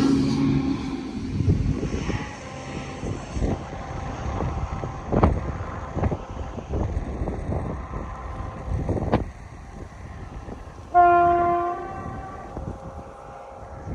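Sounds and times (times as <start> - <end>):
wind buffeting microphone: 0.0 - 13.9
train horn blast: 10.2 - 13.9.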